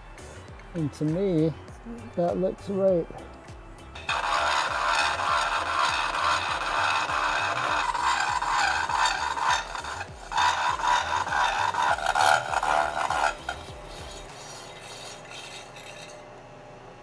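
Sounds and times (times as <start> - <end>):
saw cutting steel: 4.0 - 16.3
milling machine running: 4.0 - 17.0.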